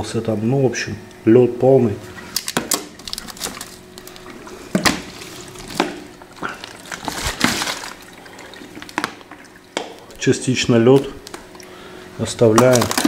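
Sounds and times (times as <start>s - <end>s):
water sloshing in bottle: 2.0s - 10.2s.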